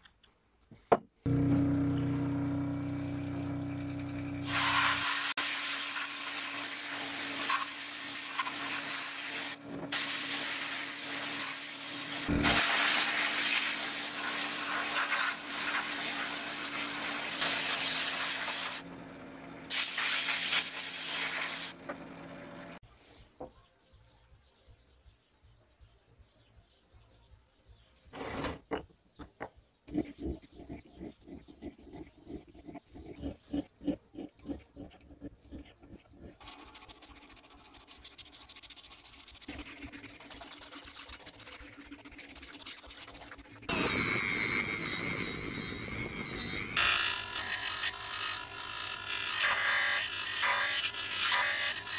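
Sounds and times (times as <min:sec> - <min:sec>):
abrasive blasting gun hissing: 0:04.5 - 0:18.8, 0:19.7 - 0:21.7
sandpaper scratching on metal: 0:04.5 - 0:18.8, 0:35.5 - 0:43.7, 0:46.8 - 0:51.9.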